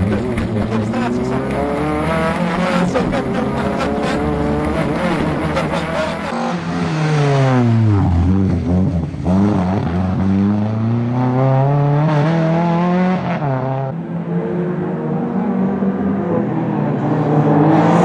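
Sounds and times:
rally car engine revving: 0:00.0 - 0:18.0.

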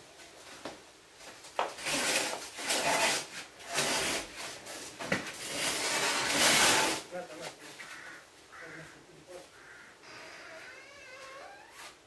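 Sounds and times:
rubbing and scraping: 0:01.3 - 0:08.0.

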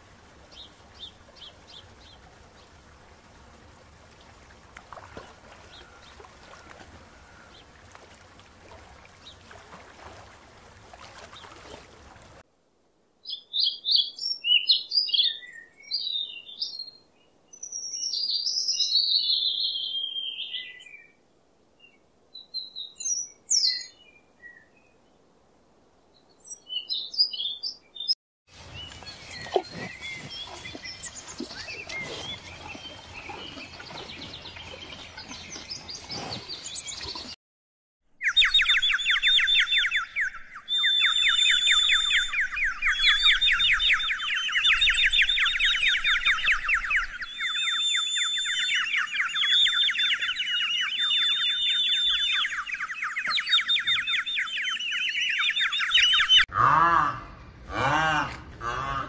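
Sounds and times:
high steady whistle: 0:40.6 - 0:44.2, 0:50.9 - 0:52.6.

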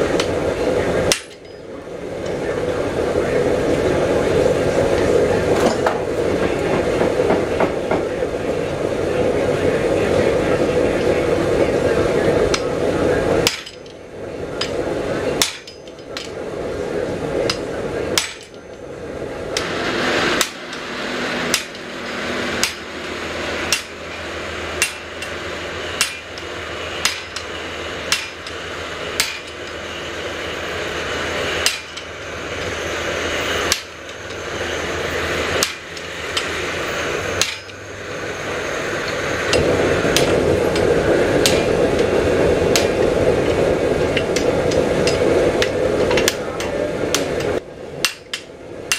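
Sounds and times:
steady rushing noise: 0:00.0 - 0:48.9
hammer striking metal tool: 0:01.1 - 0:01.6, 0:13.4 - 0:14.0, 0:15.4 - 0:16.4, 0:18.2 - 0:18.7, 0:19.6 - 0:25.4, 0:26.0 - 0:28.6, 0:29.2 - 0:29.9, 0:31.6 - 0:32.7, 0:33.6 - 0:34.4, 0:35.3 - 0:36.7, 0:37.4 - 0:37.8, 0:48.0 - 0:48.9.

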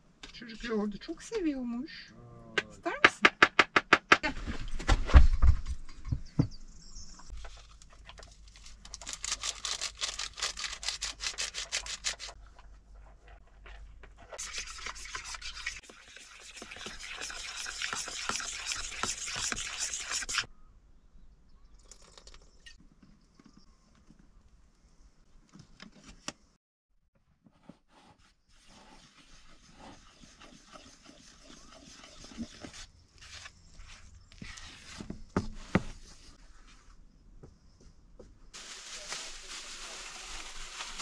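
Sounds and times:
stirring dough in plastic bowl: 0:28.6 - 0:32.9.

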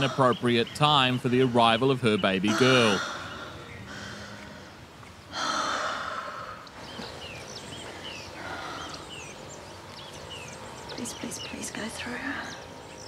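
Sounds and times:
small birds chirping: 0:00.0 - 0:13.0
woman breathing hard: 0:02.5 - 0:09.2.

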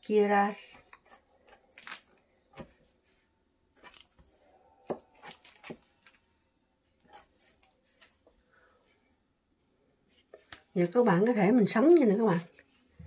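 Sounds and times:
knife cutting dough on a board: 0:02.5 - 0:03.2.

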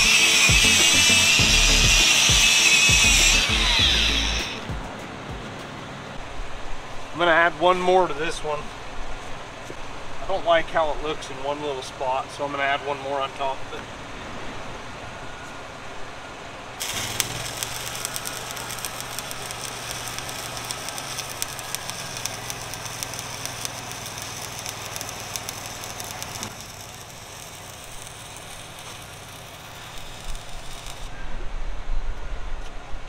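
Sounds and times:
welding arc crackling: 0:00.0 - 0:04.8, 0:16.8 - 0:31.1.

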